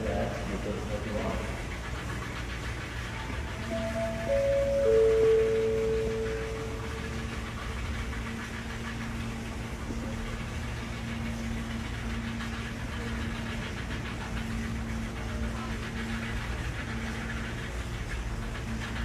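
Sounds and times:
low mechanical rumble: 0:00.0 - 0:19.0
faint hum: 0:02.2 - 0:14.3.

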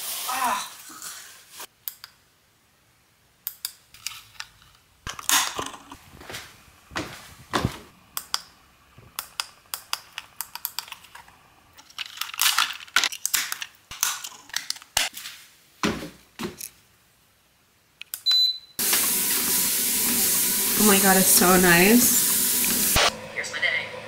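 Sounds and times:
loud steady hiss: 0:00.0 - 0:00.6, 0:18.8 - 0:23.2
short high beep: 0:18.3 - 0:18.8.

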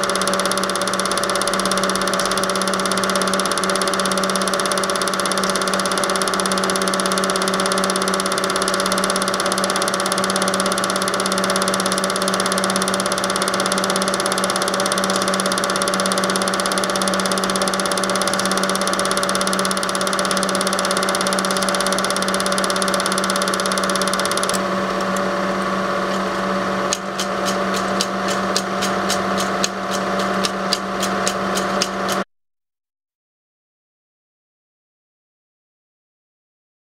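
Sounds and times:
rapid regular clicking: 0:00.0 - 0:24.6
film projector motor humming: 0:00.0 - 0:32.2.

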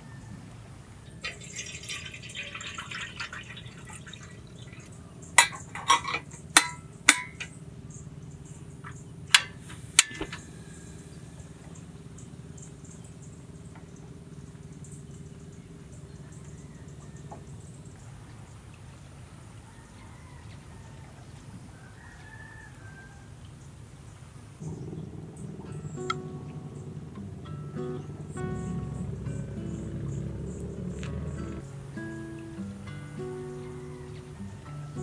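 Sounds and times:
gas stove ignition clicks: 0:05.4 - 0:07.5, 0:09.3 - 0:10.5
crackling hiss: 0:07.4 - 0:15.8.

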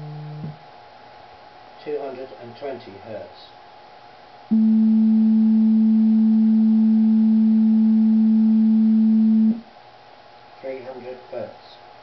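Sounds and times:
sine wave test tone: 0:00.0 - 0:00.6, 0:04.5 - 0:09.7.

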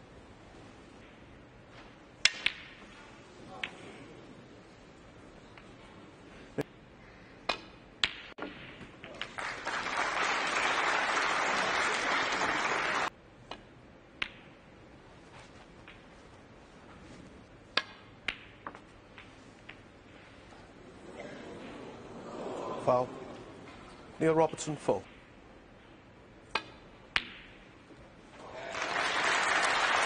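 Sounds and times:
audience applause: 0:09.3 - 0:13.1, 0:28.4 - 0:30.0
snooker balls clicking: 0:13.5 - 0:14.7, 0:15.5 - 0:16.4, 0:17.7 - 0:20.6, 0:24.4 - 0:28.0.

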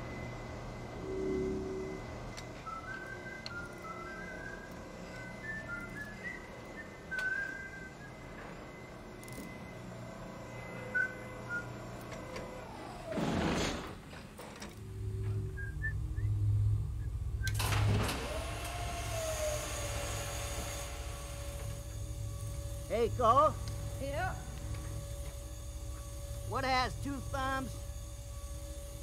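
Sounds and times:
low mechanical hum: 0:00.0 - 0:29.0
steady tone gliding down: 0:14.8 - 0:17.6.

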